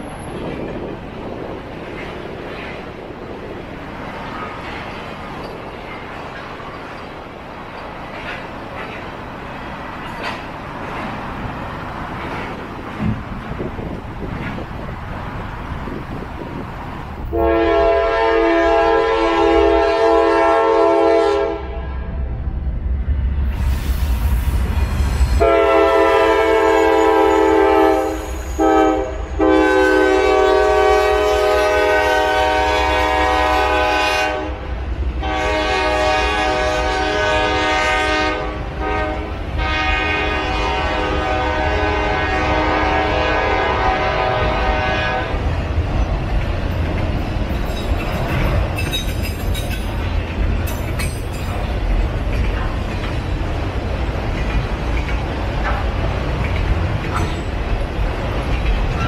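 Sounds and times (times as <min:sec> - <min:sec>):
train cars rolling with wheel clatter: 0:00.0 - 0:21.4, 0:22.5 - 0:59.0
locomotive engines rumbling: 0:00.0 - 0:59.0
locomotive air horn blasts: 0:17.3 - 0:22.1, 0:25.4 - 0:34.6, 0:35.2 - 0:45.4.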